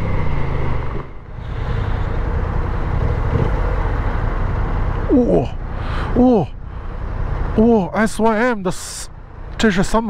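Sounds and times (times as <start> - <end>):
wind and road noise: 0.0 - 10.0.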